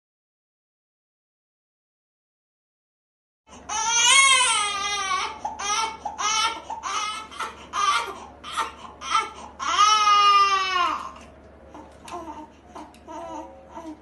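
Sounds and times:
baby crying: 3.6s - 14.0s.

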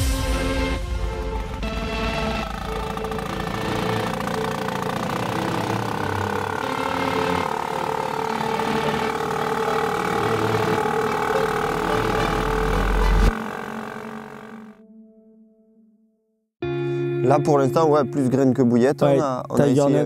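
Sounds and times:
outboard motor running: 0.9s - 14.8s.

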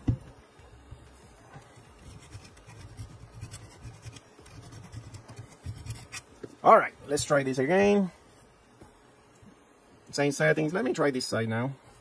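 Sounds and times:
scratching and handling sounds: 0.8s - 6.6s.

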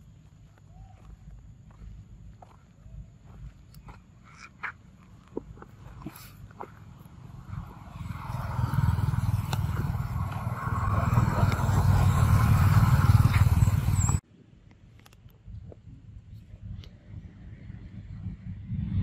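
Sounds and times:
vehicle engine running: 5.6s - 14.2s.

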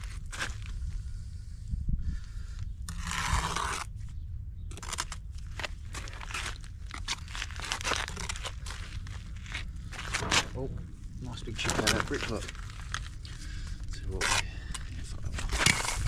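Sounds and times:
trowel scraping mortar: 2.9s - 3.9s, 15.3s - 16.0s.

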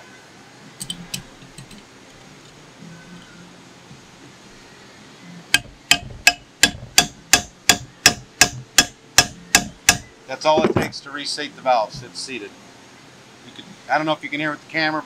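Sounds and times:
hammer tapping on metal tool: 5.6s - 10.9s.

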